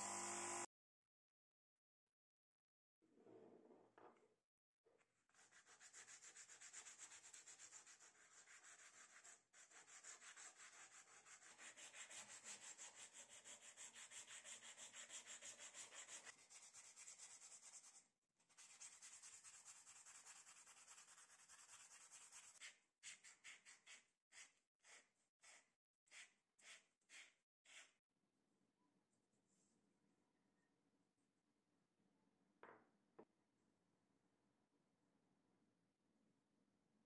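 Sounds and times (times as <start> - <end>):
sandpaper rubbing on wood: 5.4 - 27.9.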